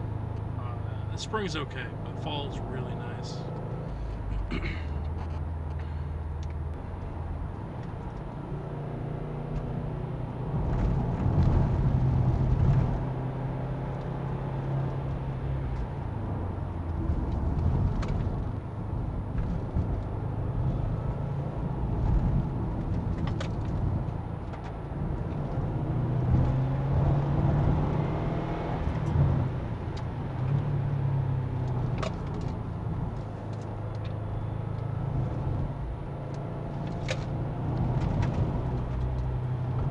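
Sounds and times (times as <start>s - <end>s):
car engine running: 0.0s - 8.5s
tyre and road noise: 0.0s - 39.9s.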